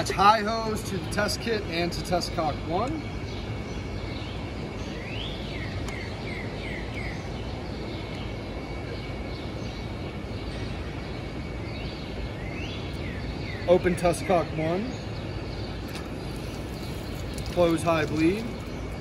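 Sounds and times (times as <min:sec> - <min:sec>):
songbird singing: 0:00.0 - 0:19.0
urban background noise: 0:00.0 - 0:19.0.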